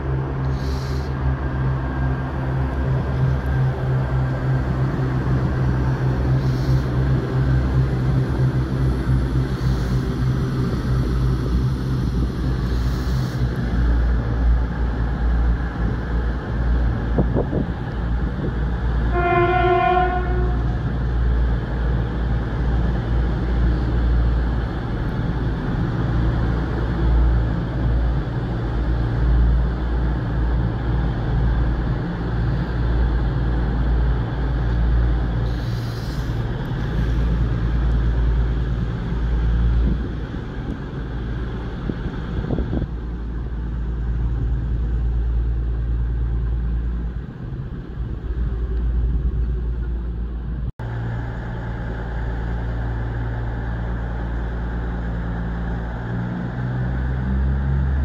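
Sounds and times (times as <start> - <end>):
train engine rumble: 0.0 - 58.0
train horn blast: 19.1 - 20.8.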